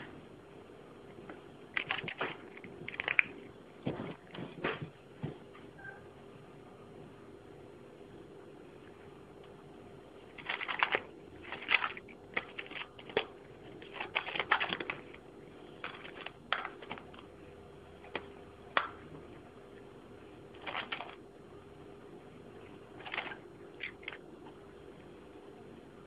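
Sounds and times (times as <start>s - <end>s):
cat chewing food: 10.3s - 17.3s.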